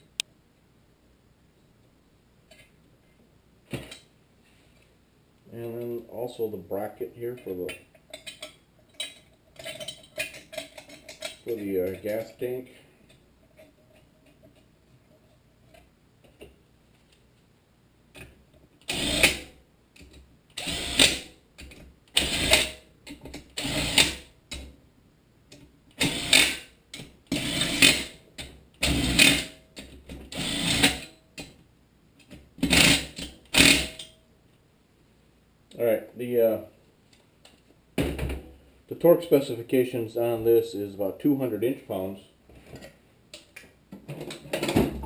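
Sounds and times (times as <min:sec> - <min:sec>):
cordless drill driving bolts: 0:18.8 - 0:19.5, 0:20.6 - 0:21.2, 0:22.2 - 0:22.7, 0:23.6 - 0:24.2, 0:26.0 - 0:26.7, 0:27.3 - 0:28.1, 0:30.3 - 0:31.1, 0:32.6 - 0:33.9.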